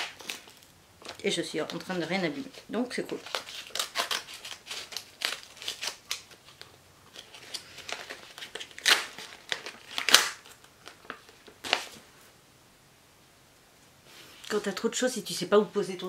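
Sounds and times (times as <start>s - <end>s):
packaging rustling: 0.0s - 12.1s.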